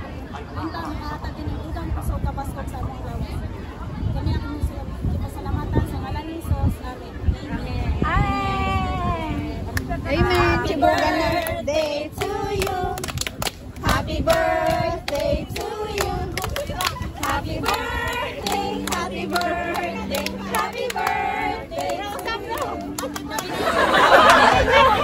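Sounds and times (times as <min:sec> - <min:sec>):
group of people singing: 0:10.1 - 0:13.1, 0:13.8 - 0:25.0
hands clapping in rhythm: 0:10.8 - 0:24.5.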